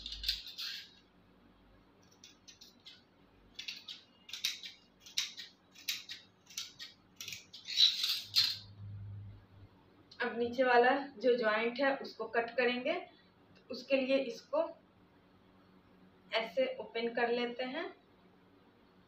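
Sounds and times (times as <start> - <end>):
scissors snipping fabric: 3.6 - 7.6.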